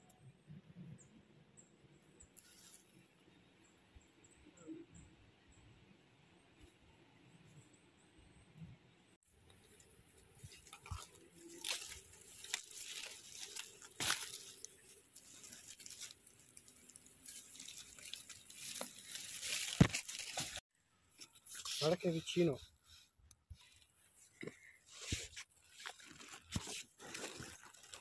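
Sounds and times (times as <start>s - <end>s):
dry leaf litter crackling: 9.6s - 20.6s, 25.5s - 28.0s.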